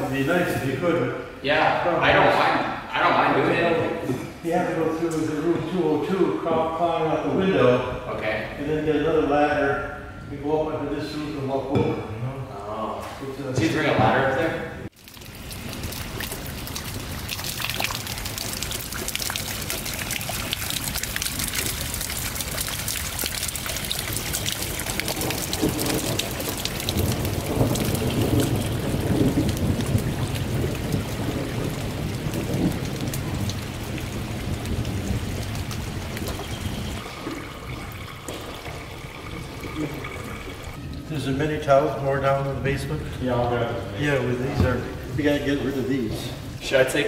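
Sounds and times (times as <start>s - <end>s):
heavy rain on pavement: 15.0s - 40.8s
low rumble of thunder: 23.7s - 37.1s.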